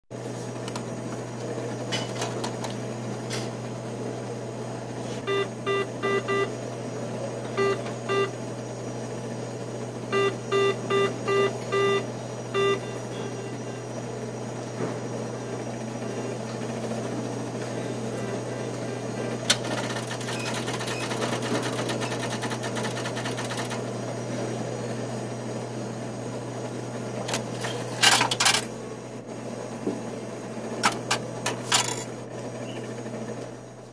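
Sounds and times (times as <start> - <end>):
low machine hum: 0.2 - 33.9
keypad beeps: 5.2 - 6.5, 7.6 - 8.4, 10.1 - 13.8, 20.1 - 22.5.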